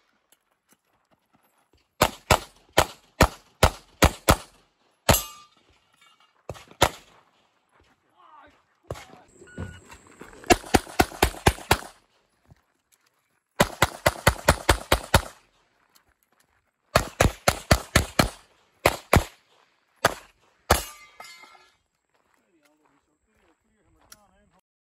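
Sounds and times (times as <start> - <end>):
pistol shots: 2.0 - 5.5, 6.5 - 7.2, 10.4 - 12.0, 13.6 - 15.4, 17.0 - 19.4, 20.0 - 21.2.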